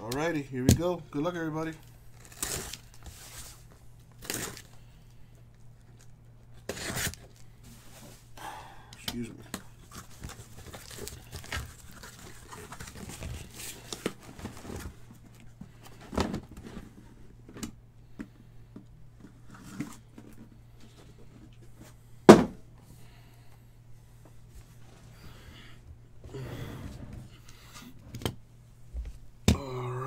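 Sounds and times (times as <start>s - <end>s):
packaging crinkling and tearing: 2.1s - 3.1s, 4.1s - 4.7s, 6.0s - 7.5s, 9.9s - 14.9s
loud thump: 22.3s - 22.6s.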